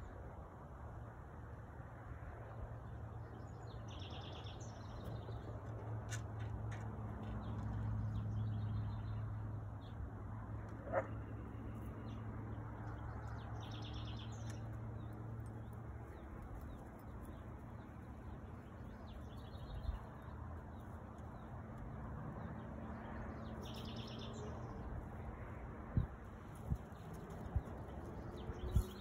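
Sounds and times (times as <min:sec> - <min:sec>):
small birds chirping: 0:10.9 - 0:29.0.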